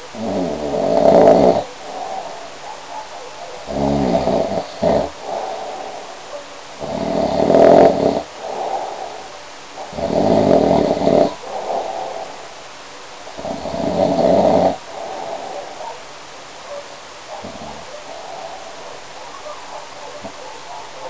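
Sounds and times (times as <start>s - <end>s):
person snoring: 0.2s - 2.5s, 3.7s - 6.2s, 6.8s - 12.6s, 13.4s - 15.8s.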